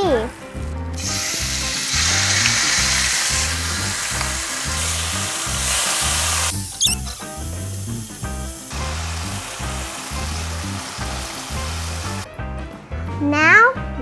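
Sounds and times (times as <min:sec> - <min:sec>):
background music with steady beat: 0:00.0 - 0:14.0
meat sizzling in hot oil: 0:00.9 - 0:12.3.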